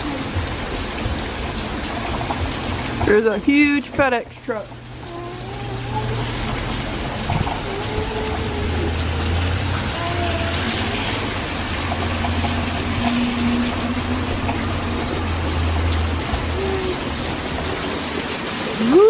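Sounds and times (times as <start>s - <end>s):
heavy rain on pavement: 0.0s - 19.0s
low hum: 10.4s - 17.2s.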